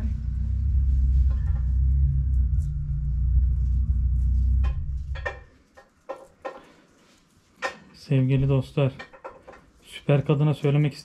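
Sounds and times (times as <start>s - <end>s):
deep low rumble: 0.0s - 5.6s.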